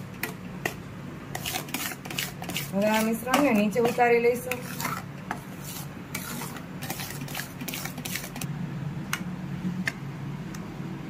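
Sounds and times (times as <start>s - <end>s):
steady low hum: 0.0s - 11.0s
metal spatula scraping a pan: 1.3s - 8.5s.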